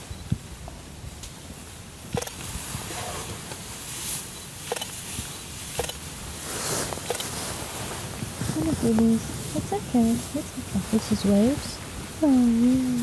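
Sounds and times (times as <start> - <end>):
low steady rumble: 0.0 - 13.0
rustling: 0.7 - 13.0
sharp clicks or snaps: 2.1 - 2.5, 4.7 - 5.0, 5.8 - 6.0, 7.1 - 7.3.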